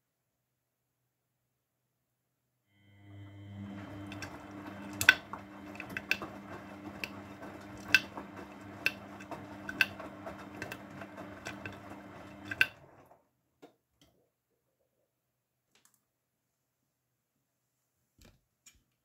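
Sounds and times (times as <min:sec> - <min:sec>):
washing machine motor humming: 0:02.8 - 0:13.2.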